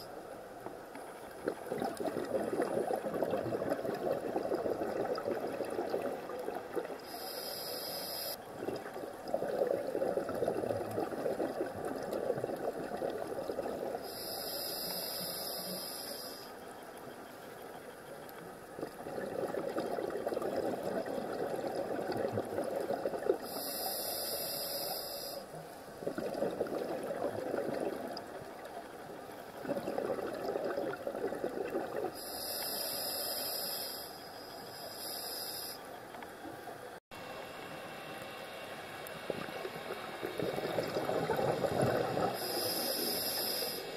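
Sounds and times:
exhaled air bubbling: 1.3 - 15.6, 18.7 - 25.4, 26.0 - 33.8, 39.1 - 43.9
regulator inhalation hiss: 7.0 - 8.4, 14.0 - 16.6, 23.4 - 25.9, 32.2 - 36.0, 42.2 - 43.9.

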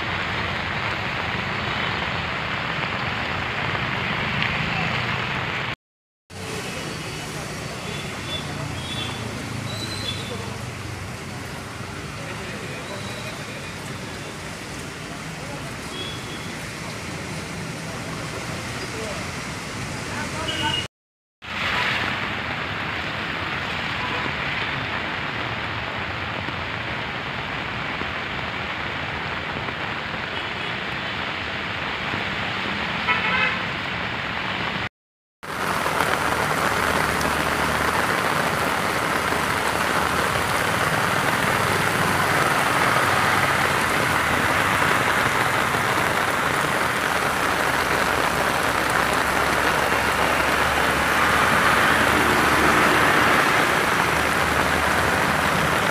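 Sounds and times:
cars splashing through floodwater: 0.0 - 55.9
heavy rain: 0.0 - 55.9
car horn: 20.5 - 20.9, 33.1 - 33.6.

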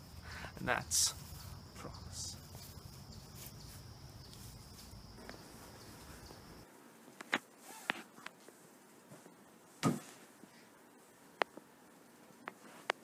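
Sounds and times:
high insect drone: 0.0 - 6.7.

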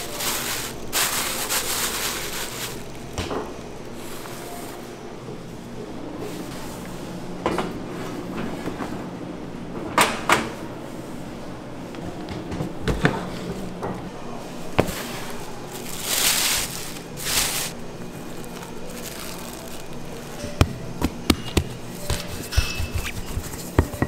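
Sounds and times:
steady machine hum: 0.0 - 24.0
clatter of pans and tools: 22.4 - 24.0.

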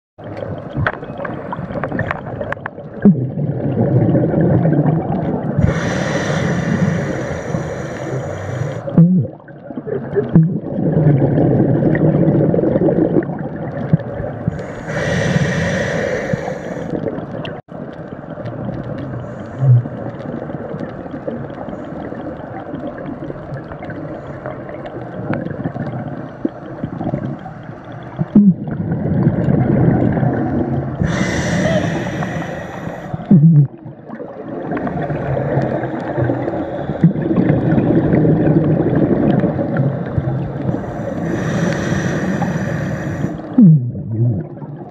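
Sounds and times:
gurgling exhaled bubbles: 0.2 - 44.9
hissing regulator inhalations: 5.6 - 8.9, 14.5 - 17.0, 31.0 - 33.3, 40.6 - 43.5.

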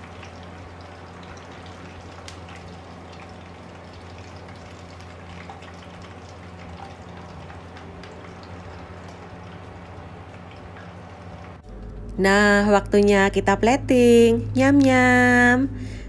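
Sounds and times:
hot oil sizzling in a wok: 0.0 - 11.5.

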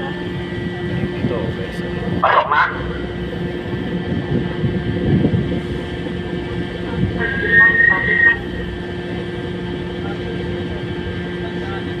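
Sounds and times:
ship engines droning: 0.0 - 12.0
high-pitched tone: 7.0 - 8.7.

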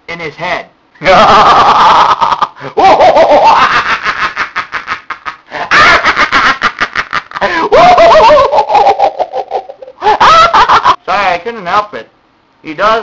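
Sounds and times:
man laughing loudly: 1.0 - 11.0
man's drawn-out cry: 7.4 - 10.7.

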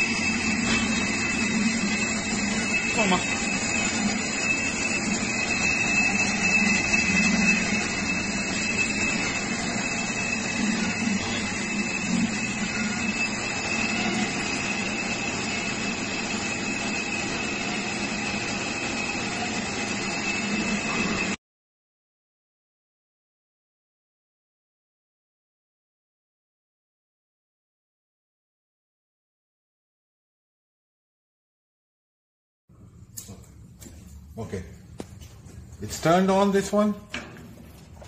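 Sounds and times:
slicer motor and belt whir: 0.0 - 21.4.

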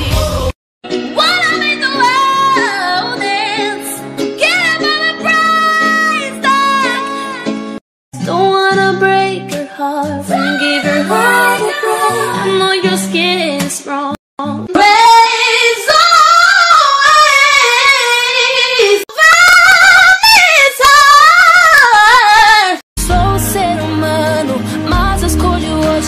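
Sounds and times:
musical backing: 0.0 - 15.7, 23.0 - 26.0.

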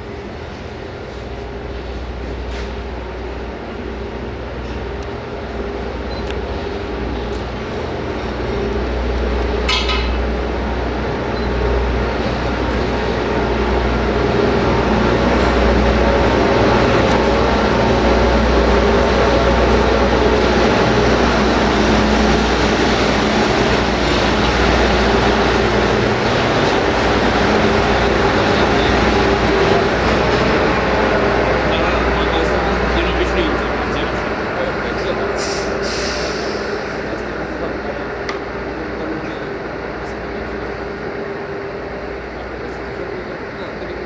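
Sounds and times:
diesel engine humming: 0.0 - 44.0.

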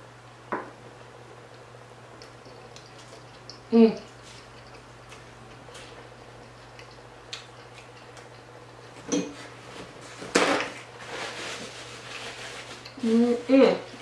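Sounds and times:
paper napkin rustling: 9.4 - 13.8.

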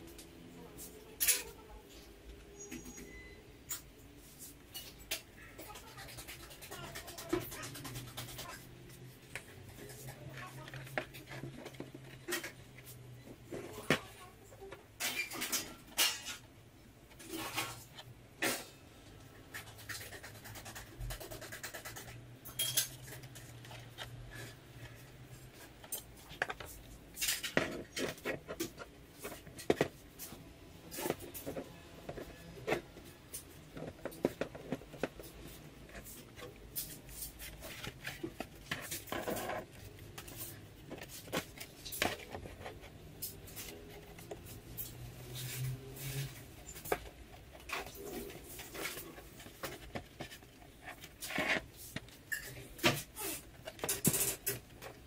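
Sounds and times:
light clicks and scrapes: 19.5 - 55.0.

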